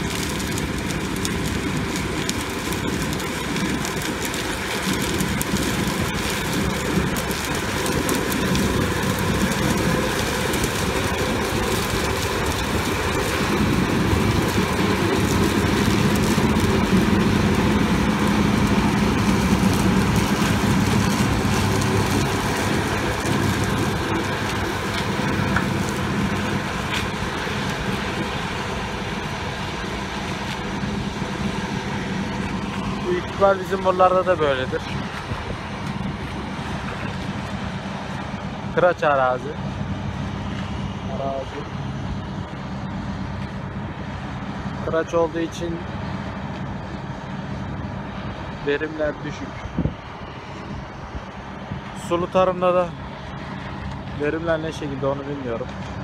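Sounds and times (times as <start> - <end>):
combine harvester humming: 0.0 - 56.0.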